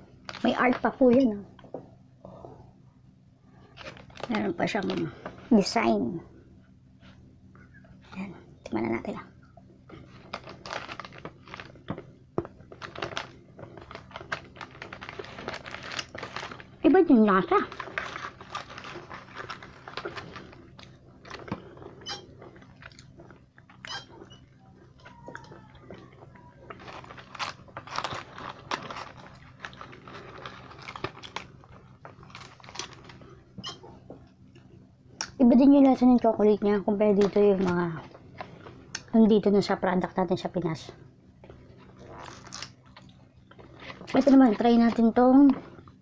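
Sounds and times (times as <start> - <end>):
foil wrapper crinkling: 0.2 - 0.8, 3.7 - 5.0, 10.0 - 23.8, 25.2 - 33.4, 42.1 - 45.0
chewing chocolate: 17.7 - 35.4.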